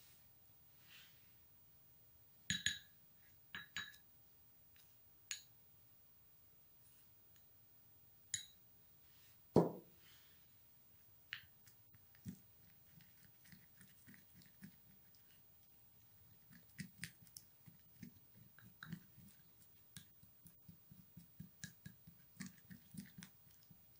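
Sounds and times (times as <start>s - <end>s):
soft ticks of stirring paste: 7.2s - 7.6s, 10.9s - 23.9s
dull knock: 9.6s - 9.9s.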